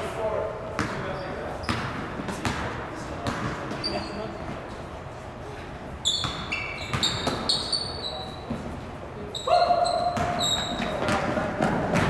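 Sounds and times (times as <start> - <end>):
sneakers squeaking on gym floor: 0.8 - 4.6, 6.0 - 12.0
basketball bouncing: 1.6 - 3.8, 6.2 - 7.6, 10.0 - 12.0.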